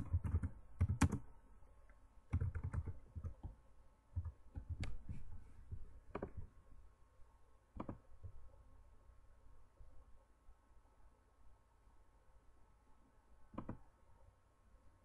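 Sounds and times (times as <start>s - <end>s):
keyboard keystrokes: 0.0s - 1.2s, 2.3s - 3.6s, 7.8s - 8.0s, 13.5s - 13.8s
mouse clicks: 4.2s - 5.3s, 7.8s - 8.0s, 13.5s - 13.8s.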